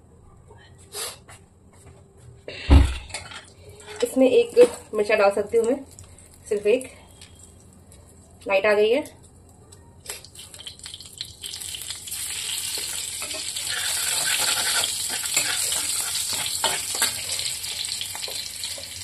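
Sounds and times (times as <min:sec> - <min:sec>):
chilli sizzling in hot oil: 0:10.1 - 0:19.0
steel spatula scraping pan: 0:12.7 - 0:17.6.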